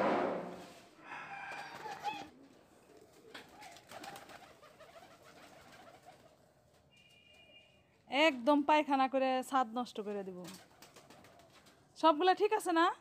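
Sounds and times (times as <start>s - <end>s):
pigeons cooing: 1.2s - 6.4s.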